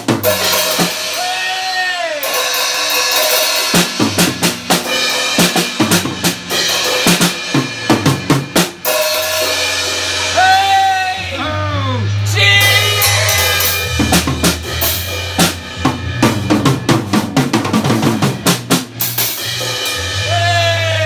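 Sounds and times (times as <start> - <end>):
drum kit playing: 0.0 - 21.0
melodic music: 8.9 - 19.9.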